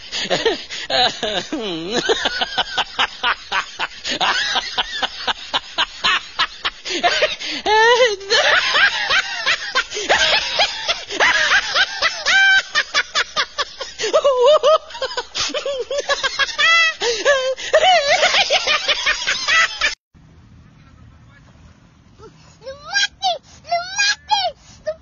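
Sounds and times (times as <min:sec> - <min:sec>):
snickering laughter: 0:00.0 - 0:20.0.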